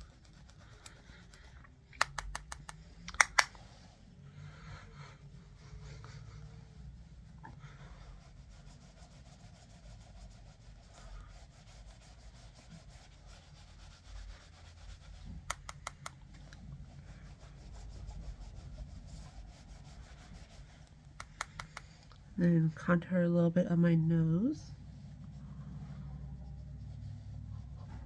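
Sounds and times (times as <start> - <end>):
makeup brush rubbing skin: 0.0 - 23.2, 24.0 - 28.0
sharp clicks: 1.9 - 3.6.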